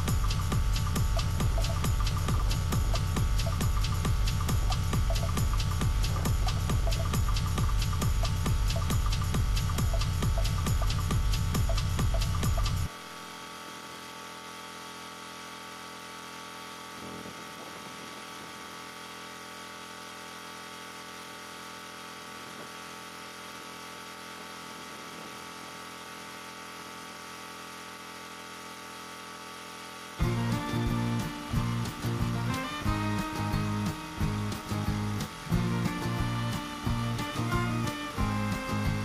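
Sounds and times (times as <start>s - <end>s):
electrical hum: 0.0s - 26.8s, 29.0s - 39.0s
constant hiss: 30.2s - 39.0s.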